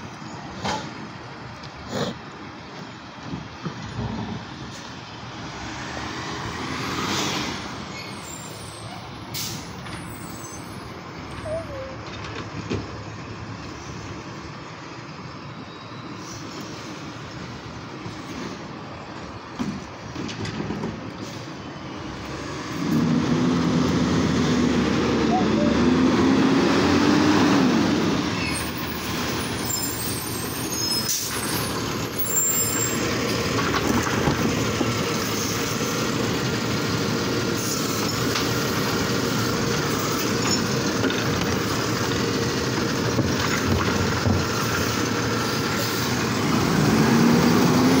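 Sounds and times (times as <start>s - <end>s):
diesel engine revving: 22.0s - 48.0s.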